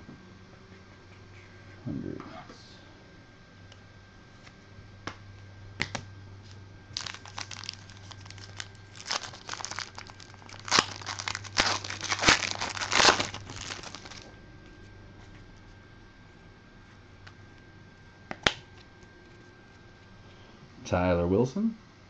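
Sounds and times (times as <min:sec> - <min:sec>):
wrapper crinkling: 0:06.5 - 0:14.3.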